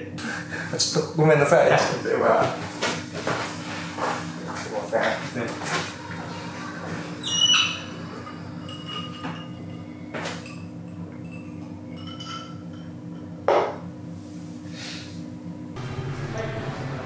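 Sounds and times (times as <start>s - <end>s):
steady low hum: 15.2s - 17.0s.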